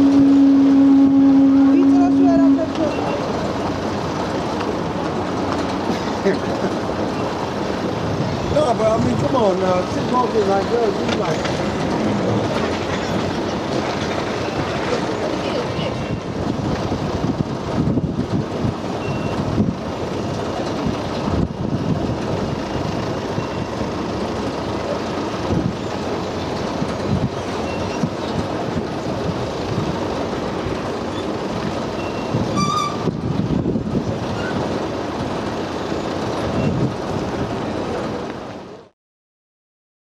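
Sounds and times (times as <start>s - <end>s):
escalators rumbling and rattling: 0.0s - 38.9s
brief beep: 19.0s - 19.4s.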